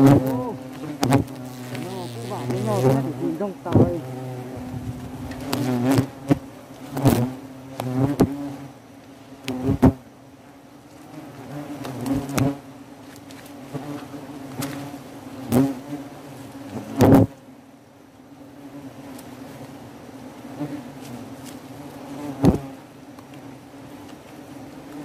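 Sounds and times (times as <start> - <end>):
single wasp flying past: 0.0 - 8.7, 11.0 - 12.7, 13.3 - 17.4, 20.4 - 23.5
swarm of wasps buzzing: 0.0 - 25.0.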